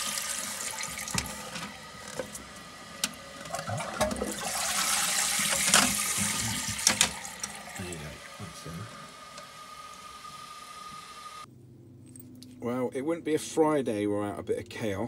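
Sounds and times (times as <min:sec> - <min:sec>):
water running in toilet cistern: 0:00.0 - 0:11.5.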